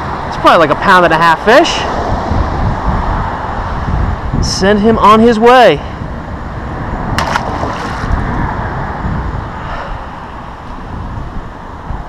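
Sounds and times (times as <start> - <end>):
road traffic: 0.0 - 12.0
wind rumbling on microphone: 0.0 - 12.0
fish splashing into water: 7.2 - 8.1.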